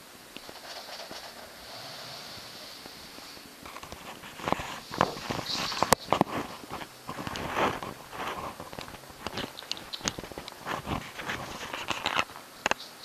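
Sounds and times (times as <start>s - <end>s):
sharp little clicks: 8.8s - 10.6s.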